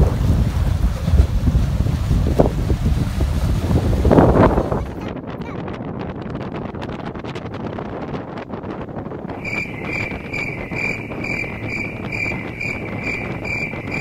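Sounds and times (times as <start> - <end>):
wind buffeting microphone: 0.0 - 14.0
high-pitched chirp: 9.4 - 14.0.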